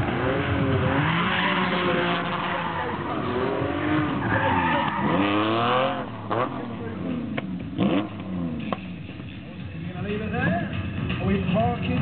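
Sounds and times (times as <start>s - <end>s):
tyres skidding on tarmac: 0.0s - 8.8s
car engine revving: 0.0s - 12.0s.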